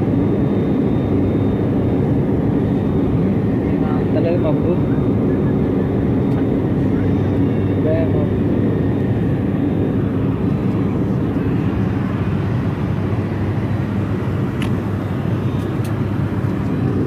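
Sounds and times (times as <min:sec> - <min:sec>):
airliner cabin engine rumble: 0:00.0 - 0:17.0
faint steady whine: 0:00.0 - 0:17.0.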